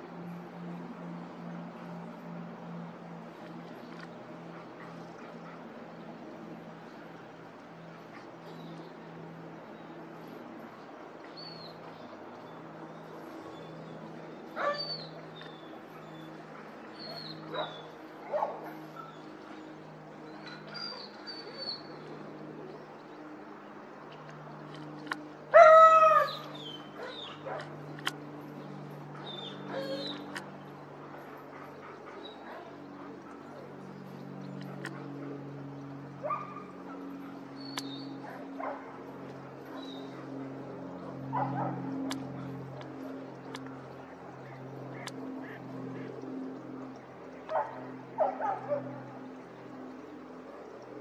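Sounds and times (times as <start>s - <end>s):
airplane engines droning overhead: 0.0s - 51.0s
dog barking: 14.6s - 14.9s, 17.2s - 19.1s, 36.2s - 37.3s, 38.2s - 38.9s, 41.3s - 41.8s, 47.5s - 48.9s.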